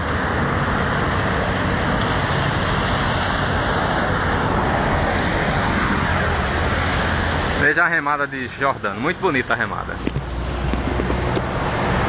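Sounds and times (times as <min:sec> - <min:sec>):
low engine hum: 0:00.0 - 0:12.0
road traffic rushing: 0:00.0 - 0:12.0.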